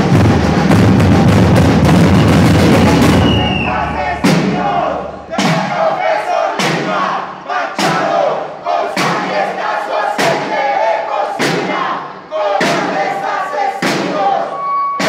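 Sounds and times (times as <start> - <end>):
sharp drum beat: 0.0 - 7.2, 7.8 - 8.3, 8.9 - 9.6, 11.4 - 13.2
crowd chanting and shouting: 1.9 - 15.0.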